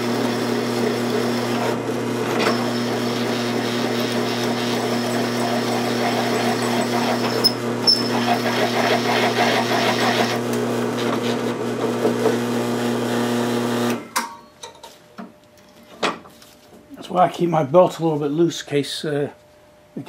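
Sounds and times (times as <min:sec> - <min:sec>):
drill bit cutting steel: 0:00.0 - 0:10.4
drill press motor hum: 0:00.0 - 0:14.1.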